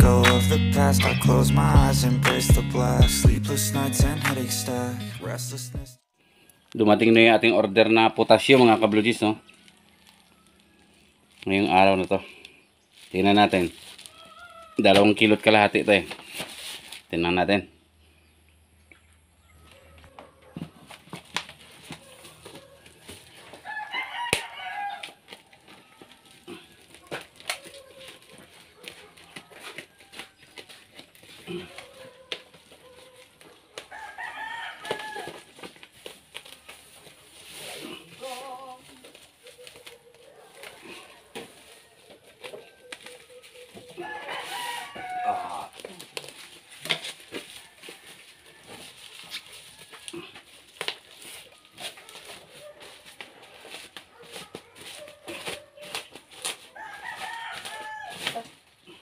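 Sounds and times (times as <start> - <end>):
plastic parcel crackling: 8.5 - 12.1, 12.8 - 15.2, 15.8 - 17.2, 20.7 - 58.6
rooster crowing: 14.1 - 14.8, 23.4 - 26.2, 29.3 - 30.8, 33.9 - 35.5, 40.6 - 45.8, 47.3 - 50.3, 56.7 - 58.4.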